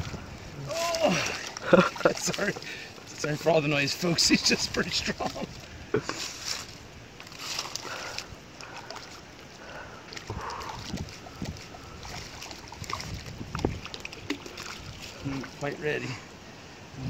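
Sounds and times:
fish thrashing and splashing: 0.0 - 3.2, 4.0 - 15.6.

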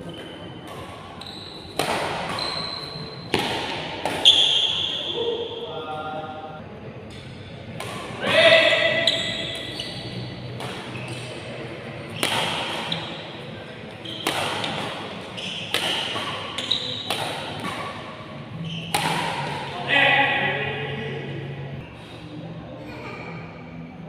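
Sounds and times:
shoes squeaking on court: 0.0 - 3.5, 4.1 - 5.4, 8.9 - 19.5
racket hitting shuttlecock: 0.6 - 4.9, 7.2 - 11.4, 12.1 - 13.4, 14.0 - 18.2, 18.8 - 19.8.

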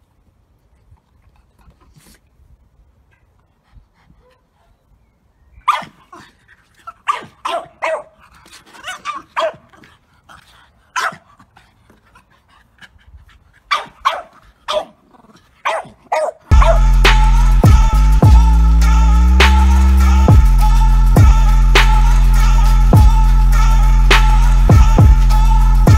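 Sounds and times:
puppy barking: 5.7 - 6.0, 7.0 - 8.2, 8.8 - 9.7, 11.0 - 11.2, 13.7 - 15.0, 15.6 - 16.9
loud music: 16.5 - 25.9.

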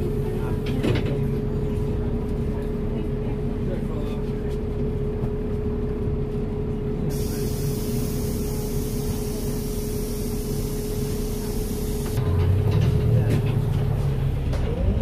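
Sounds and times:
bus engine drone and whine: 0.0 - 15.0
air system hiss: 7.1 - 12.2.

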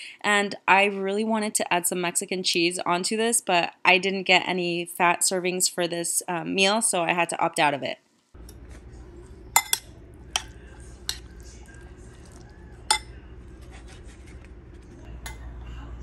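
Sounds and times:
low hum: 8.4 - 16.0
metal spoon clinking on ceramic bowl: 9.6 - 11.3, 12.9 - 13.2.

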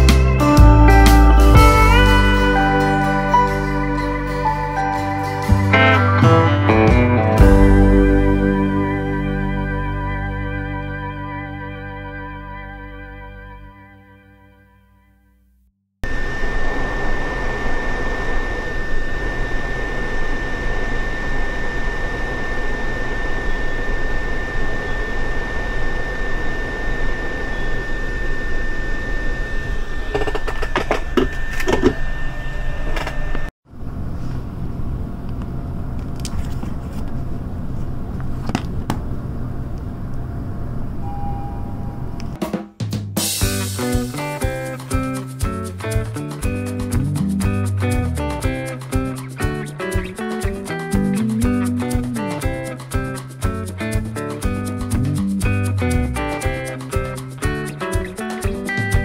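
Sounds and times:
fan rushing: 16.0 - 31.2, 46.8 - 59.0
thin high whine: 16.0 - 36.0, 39.2 - 42.4, 43.5 - 59.0.

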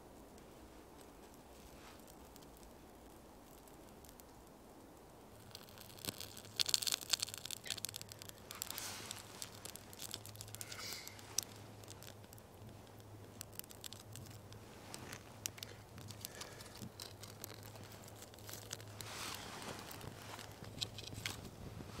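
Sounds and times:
tinder fire crackling: 0.0 - 22.0
bark and shavings rustling: 5.4 - 22.0.

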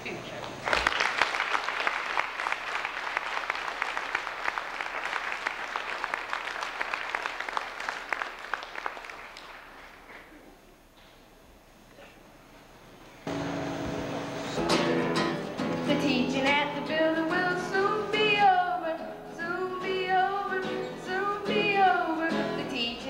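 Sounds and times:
audience applauding: 0.6 - 10.3.

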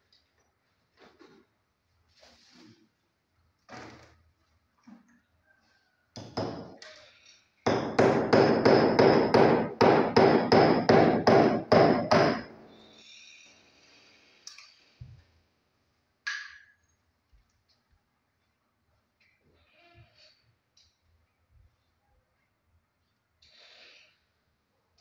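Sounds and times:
hammer striking steel chisel: 7.7 - 12.6.

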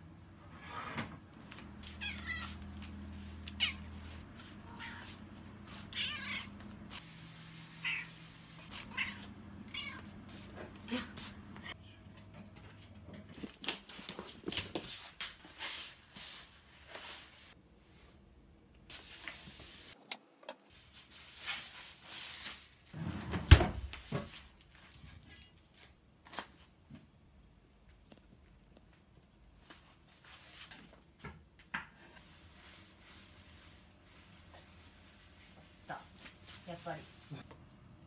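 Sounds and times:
cat meowing: 3.5 - 4.0, 5.8 - 6.6, 7.8 - 8.2, 8.8 - 10.1
rustling: 20.7 - 23.0.

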